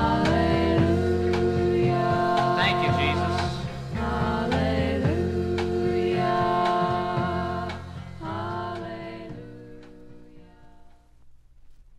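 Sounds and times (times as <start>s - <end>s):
voices singing held notes: 0.0s - 11.0s.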